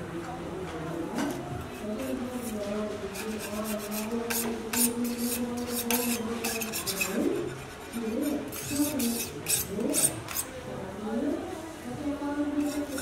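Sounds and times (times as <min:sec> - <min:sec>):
metal scraper rasping on cookware: 0:01.7 - 0:10.6, 0:12.6 - 0:13.0.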